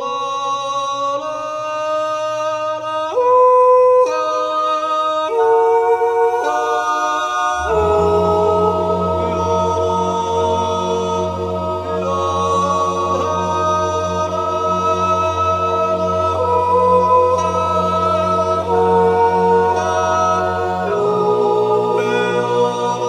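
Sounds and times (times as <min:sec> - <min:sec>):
choir singing a cappella: 0:00.0 - 0:23.0
low bass voice note: 0:07.6 - 0:21.0.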